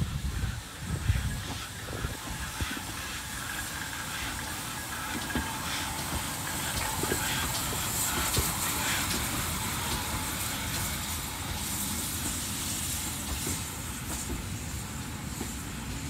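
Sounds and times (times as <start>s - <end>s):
high steam hiss: 0.0s - 16.0s
steam locomotive rumbling: 0.0s - 16.0s.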